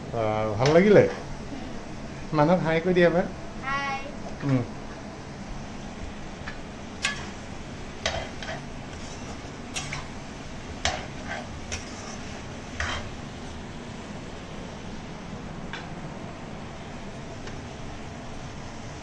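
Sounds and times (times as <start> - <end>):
metal spatula scraping a wok: 8.1 - 10.1, 10.9 - 13.2.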